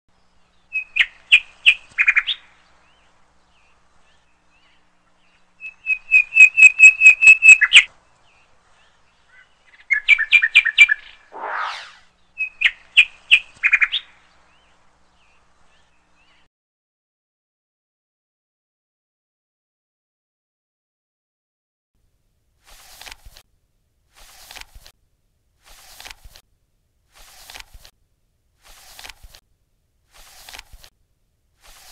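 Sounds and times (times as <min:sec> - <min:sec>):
small bird chirping: 0:00.2 - 0:16.5
short rushing noise: 0:11.3 - 0:12.1.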